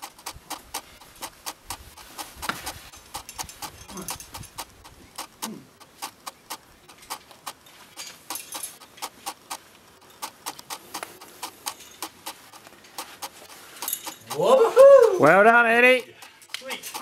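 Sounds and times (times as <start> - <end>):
sharp clicks: 0.0 - 17.0
person grunting: 5.4 - 5.7.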